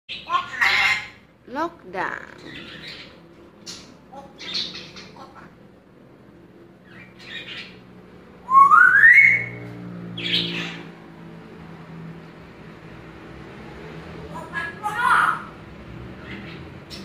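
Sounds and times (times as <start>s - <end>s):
parrot raspy calls: 0.1s - 1.3s, 10.2s - 11.0s
parrot rising whistle: 8.4s - 9.6s.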